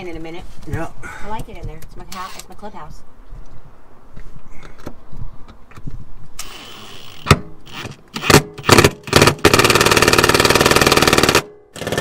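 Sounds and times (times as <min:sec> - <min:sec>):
cordless drill-driver bursts: 0:06.4 - 0:12.0.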